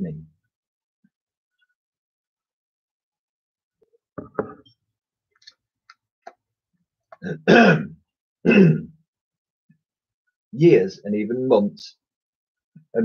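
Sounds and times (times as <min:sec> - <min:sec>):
man clearing his throat: 0:07.2 - 0:09.0.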